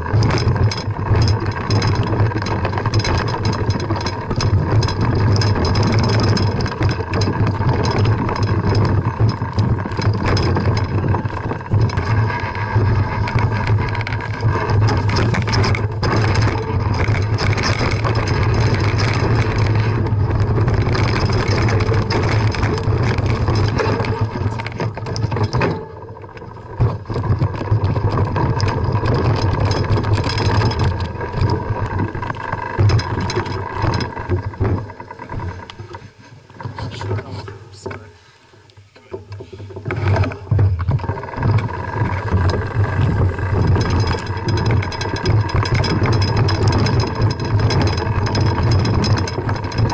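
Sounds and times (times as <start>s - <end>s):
wind rumble: 0.0s - 35.7s
camera rattling on rocky trail: 0.0s - 38.1s, 39.0s - 49.9s.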